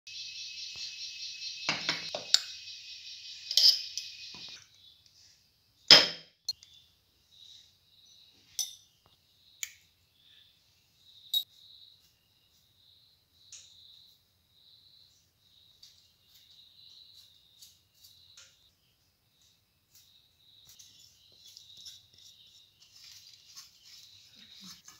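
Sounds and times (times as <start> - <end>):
faint high chirps: 0.1 - 5.1, 6.4 - 24.8
metal spoon clinking on plate: 8.6 - 8.8.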